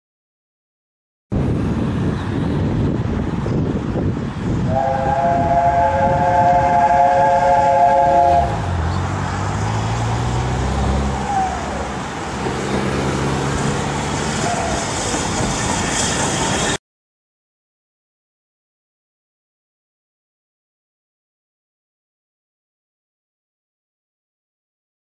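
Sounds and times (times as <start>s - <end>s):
locomotive rumbling: 1.3s - 16.8s
steam locomotive whistle chord: 4.7s - 8.6s.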